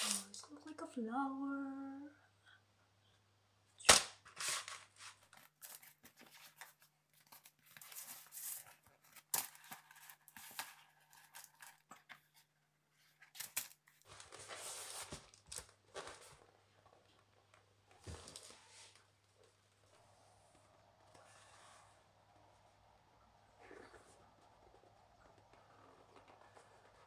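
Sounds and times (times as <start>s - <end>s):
paper snap: 0.0s - 0.4s, 3.8s - 4.8s
paper rustling and crinkling: 4.2s - 19.1s.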